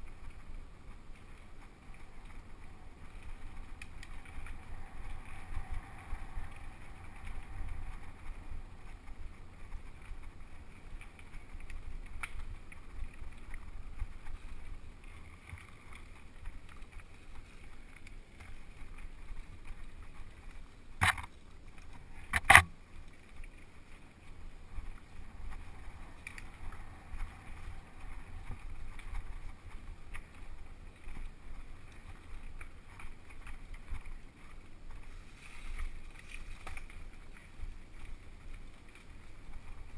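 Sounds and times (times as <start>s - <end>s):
bike rattling on bumps: 0.0s - 21.4s
wind rumble on microphone: 0.0s - 39.9s.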